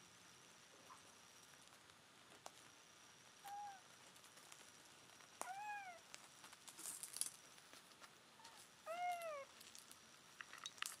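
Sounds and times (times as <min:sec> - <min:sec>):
soft scratching and rustling: 0:03.9 - 0:11.0.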